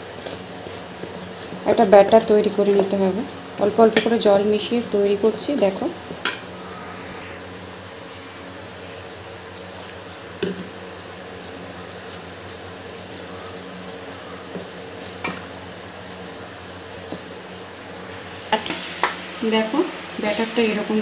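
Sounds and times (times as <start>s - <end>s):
low hum: 5.2s - 9.9s.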